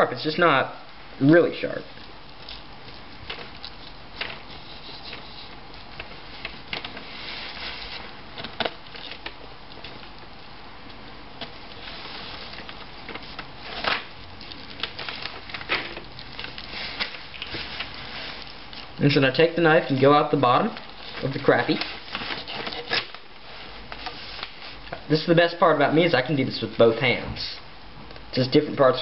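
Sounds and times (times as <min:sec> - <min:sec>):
knife cutting and scraping fish: 0:02.3 - 0:09.3.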